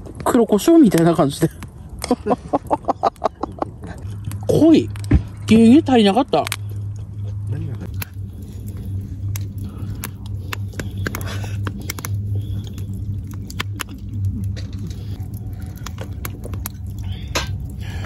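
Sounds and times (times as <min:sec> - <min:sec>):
campfire crackling and popping: 0:00.0 - 0:18.0
steady low hum: 0:01.2 - 0:18.0.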